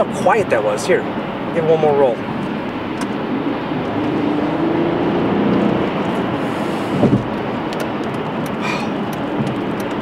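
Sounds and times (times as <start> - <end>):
road and tyre noise: 0.0 - 10.0
car engine accelerating: 2.2 - 10.0.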